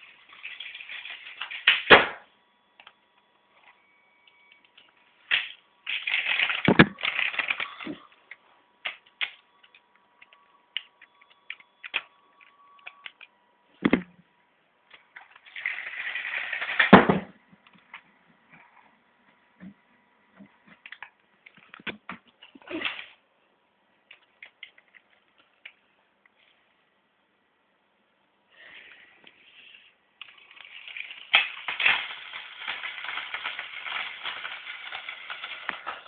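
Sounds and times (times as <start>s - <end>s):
toy train clattering on track: 0.2s - 1.8s, 5.3s - 8.0s, 15.2s - 17.0s, 30.2s - 36.0s
toy train crashing into wall: 0.4s - 2.3s, 5.3s - 8.0s, 15.4s - 17.4s, 30.3s - 36.0s.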